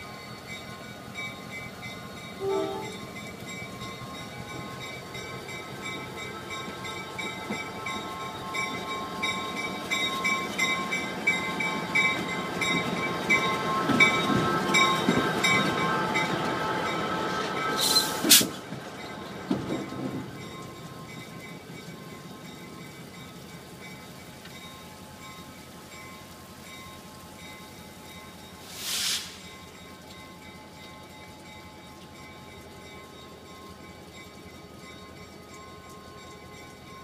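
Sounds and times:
crossing bell ringing: 0:00.0 - 0:18.2, 0:18.9 - 0:28.7, 0:29.4 - 0:37.0
diesel locomotive engine: 0:00.0 - 0:37.0
train wheels on rails: 0:00.0 - 0:37.0
train horn toot: 0:02.4 - 0:03.0
brief hiss: 0:17.8 - 0:18.6, 0:28.6 - 0:29.6.

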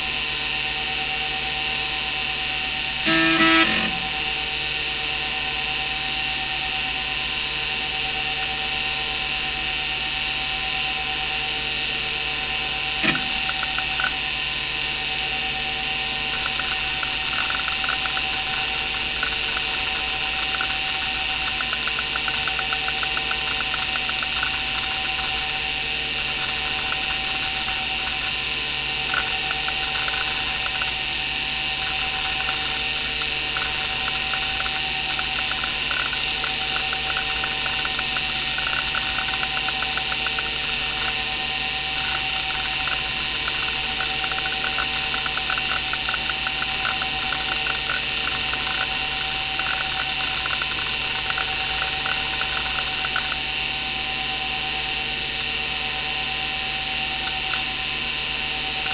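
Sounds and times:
hard drive spindle whine: 0:00.0 - 0:58.9
hard drive head-seek clicks: 0:03.1 - 0:04.3, 0:13.0 - 0:14.2, 0:16.3 - 0:28.4, 0:29.0 - 0:53.5, 0:55.3 - 0:55.6, 0:57.1 - 0:57.8, 0:58.7 - 0:58.9.

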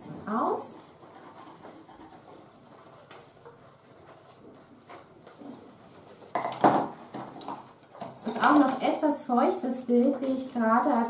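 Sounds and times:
pencils scratching on paper: 0:00.0 - 0:05.7.

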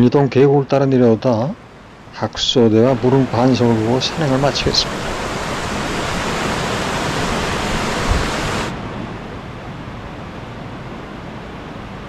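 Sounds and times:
stream rushing over rocks: 0:02.8 - 0:08.8.

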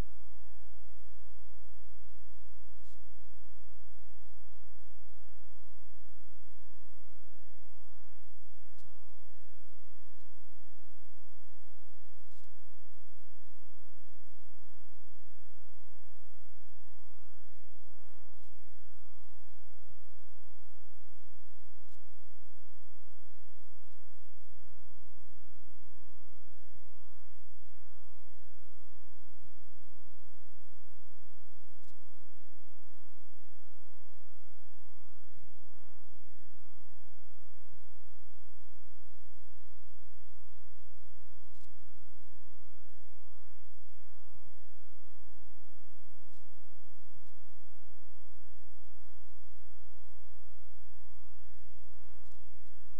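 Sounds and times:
buzzy electrical hum: 0:00.0 - 0:52.9
faint ticks: 0:08.4 - 0:09.1, 0:12.2 - 0:12.7, 0:21.6 - 0:22.3, 0:31.3 - 0:32.3, 0:41.2 - 0:42.8, 0:52.0 - 0:52.9.

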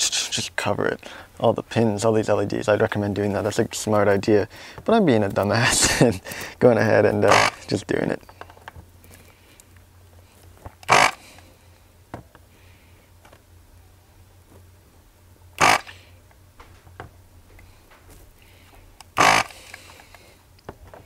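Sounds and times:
desoldering vacuum pump rasp: 0:07.2 - 0:07.8, 0:10.8 - 0:11.4, 0:15.6 - 0:16.1, 0:19.0 - 0:20.0.

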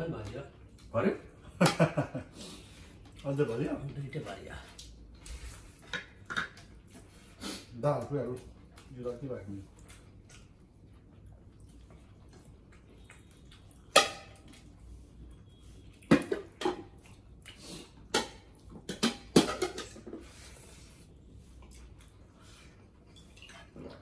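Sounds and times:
clicks and smacks of eating: 0:03.0 - 0:07.1, 0:07.9 - 0:14.9, 0:15.8 - 0:20.2, 0:21.6 - 0:24.0.

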